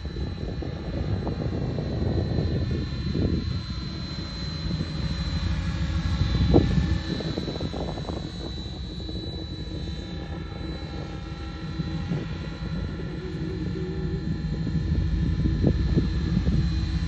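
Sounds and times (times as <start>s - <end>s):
electric motor whine: 0.0s - 17.0s.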